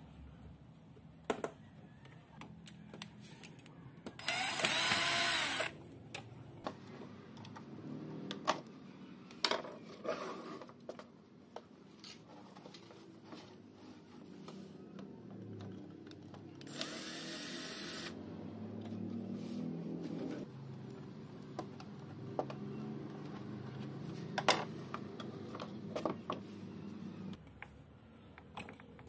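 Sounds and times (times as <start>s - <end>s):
angle grinder whir: 4.2s - 5.8s, 16.6s - 18.2s.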